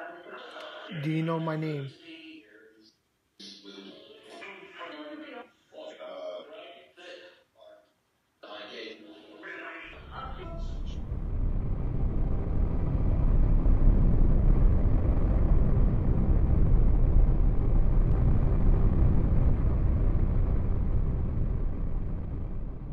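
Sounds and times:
deep rumbling drone: 10.0 - 22.9.

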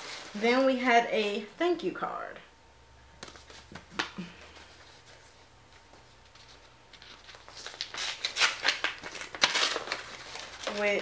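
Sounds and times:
paper rustling and crinkling: 3.2 - 11.0.

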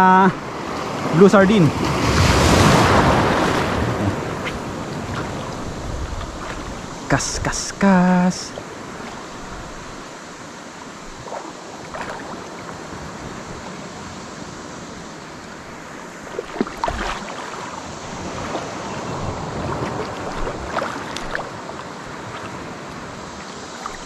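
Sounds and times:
wind noise on microphone: 1.7 - 7.6
water wash: 11.0 - 12.9, 16.1 - 24.0.

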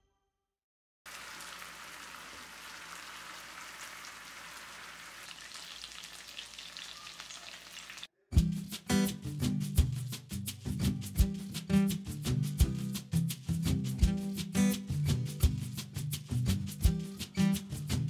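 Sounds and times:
chicken sizzling in oil: 1.1 - 8.1
music: 8.2 - 18.0.

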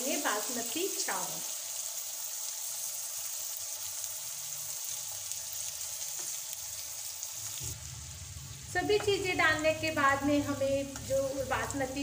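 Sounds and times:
ghee sizzling in a pan: 0.0 - 12.0.

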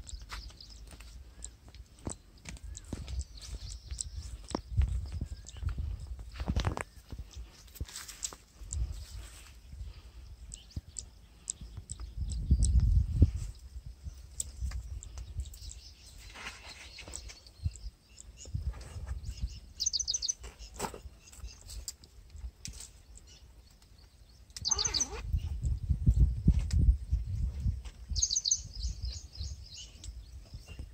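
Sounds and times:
wind buffeting microphone: 2.0 - 8.0, 8.6 - 16.3, 17.1 - 21.7, 24.2 - 30.9
bird chirping rapidly: 14.0 - 21.7, 23.1 - 25.9, 28.1 - 30.9.

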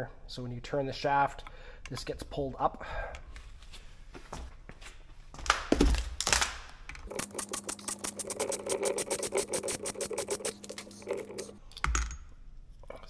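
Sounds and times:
steady hum: 7.1 - 11.6.

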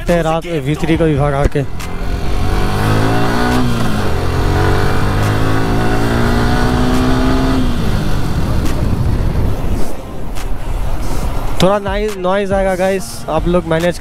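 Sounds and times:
motorcycle engine accelerating: 1.3 - 10.3.

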